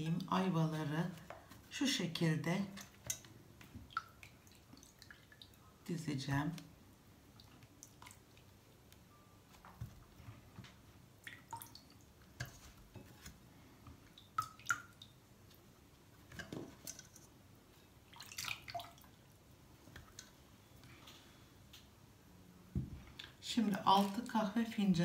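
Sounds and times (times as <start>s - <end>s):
water dripping and splashing: 2.6s - 5.8s, 7.3s - 8.9s, 11.2s - 12.8s, 14.0s - 15.6s, 18.0s - 20.3s, 23.2s - 24.7s.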